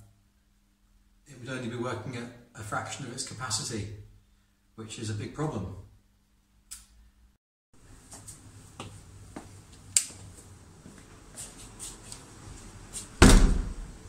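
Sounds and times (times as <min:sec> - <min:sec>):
sharp click: 0:06.7 - 0:06.9
footsteps: 0:08.0 - 0:13.2
door bang: 0:13.2 - 0:13.9.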